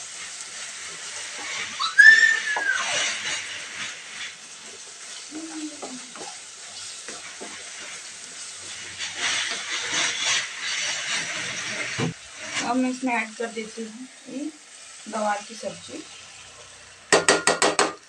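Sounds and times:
spatula scraping pan: 0.0s - 13.3s
spices sizzling in oil: 0.0s - 18.0s
high squeal: 1.7s - 3.4s.

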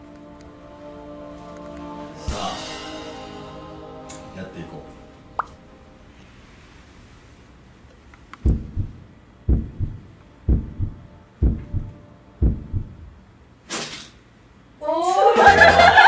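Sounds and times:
heartbeat thumps: 8.4s - 13.2s.

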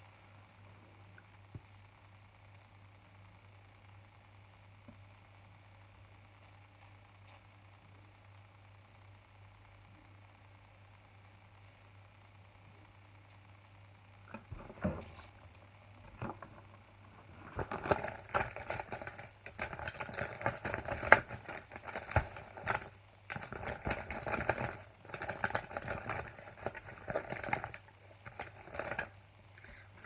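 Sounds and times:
makeup items clicking and rustling: 17.4s - 29.1s.

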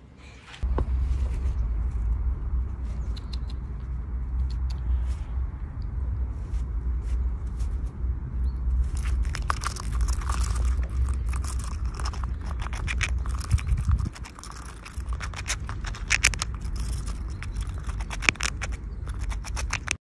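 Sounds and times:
low rumble: 0.6s - 20.0s
squirrel gnawing a nut shell: 8.8s - 20.0s.

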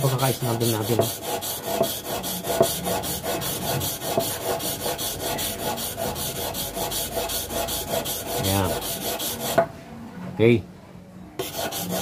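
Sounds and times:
steel scraping on sharpening stone: 11.4s - 12.0s.

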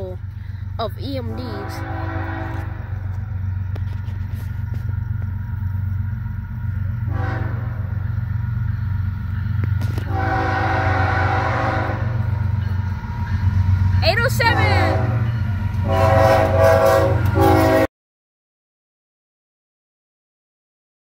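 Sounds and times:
train low rumble: 0.0s - 17.9s
locomotive air horn: 1.3s - 3.1s, 7.0s - 8.0s, 9.8s - 12.3s, 14.1s - 17.9s.

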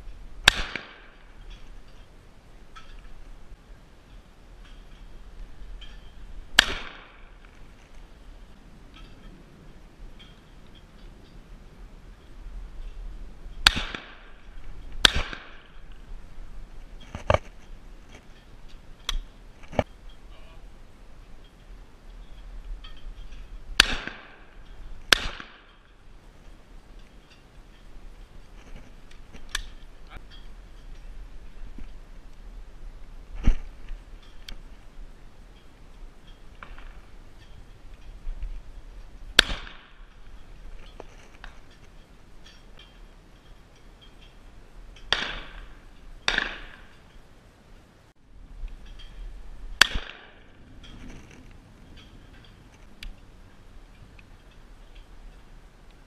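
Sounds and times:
shotgun shots with echo: 0.4s - 1.1s, 6.6s - 7.1s, 13.6s - 14.3s, 15.0s - 15.6s, 23.8s - 24.4s, 25.1s - 25.6s, 46.3s - 46.9s, 49.8s - 50.4s.

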